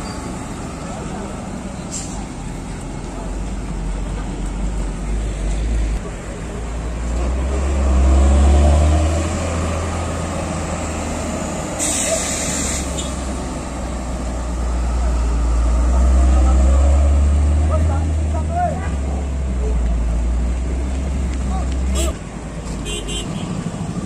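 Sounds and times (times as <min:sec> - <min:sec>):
truck diesel engine: 0:00.0 - 0:24.0
air brake hiss: 0:11.8 - 0:13.1.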